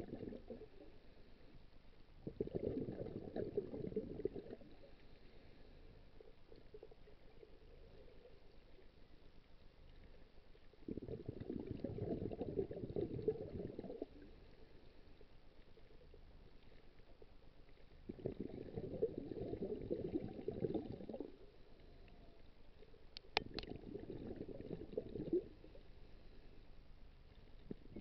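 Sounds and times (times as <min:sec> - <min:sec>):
underwater regulator bubbles: 0:00.0 - 0:00.9, 0:02.2 - 0:05.0, 0:10.8 - 0:14.5, 0:18.0 - 0:22.3, 0:23.3 - 0:25.9, 0:27.6 - 0:28.0.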